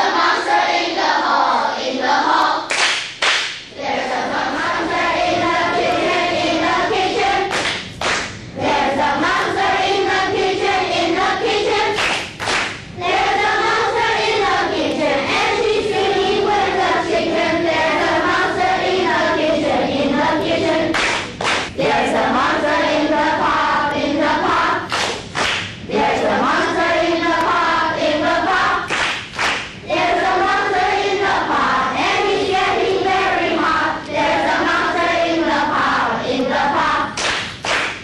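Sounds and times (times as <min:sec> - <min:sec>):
children singing in chorus: 0:00.0 - 0:02.7, 0:03.7 - 0:07.6, 0:08.6 - 0:12.1, 0:13.0 - 0:24.9, 0:25.9 - 0:29.0, 0:29.9 - 0:37.3
sharp claps: 0:02.7 - 0:03.7, 0:07.5 - 0:08.5, 0:11.9 - 0:12.9, 0:20.9 - 0:21.8, 0:24.9 - 0:25.8, 0:28.9 - 0:29.8, 0:37.2 - 0:38.0.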